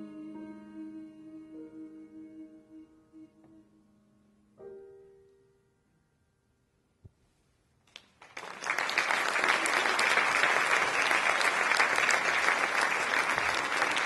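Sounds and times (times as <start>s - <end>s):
audience applauding: 8.0s - 14.0s.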